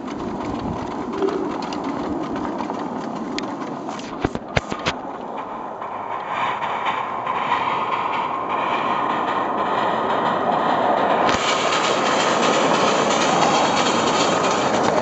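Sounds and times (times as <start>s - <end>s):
miniature steam locomotive running: 0.0s - 15.0s.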